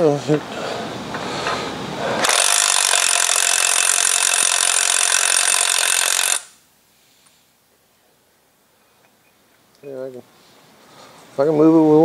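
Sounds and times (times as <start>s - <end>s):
power tool whining: 2.2s - 6.6s.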